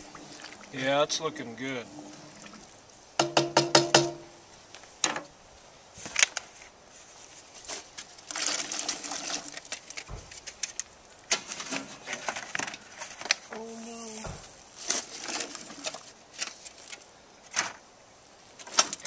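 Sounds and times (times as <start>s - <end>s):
utensils knocking on cast-iron pot: 3.2s - 4.3s.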